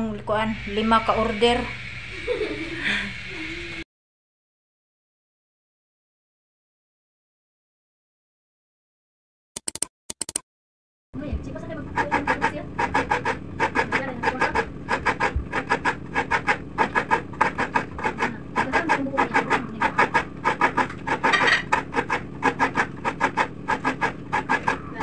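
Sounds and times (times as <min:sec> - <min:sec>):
coconut rasping on grater blade: 0:11.7 - 0:25.0.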